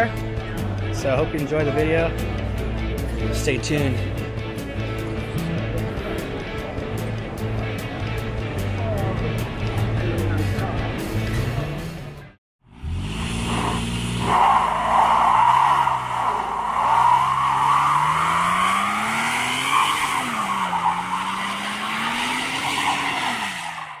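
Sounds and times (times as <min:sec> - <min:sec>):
engine revving high: 0:12.6 - 0:24.0
tyres squealing: 0:13.8 - 0:24.0.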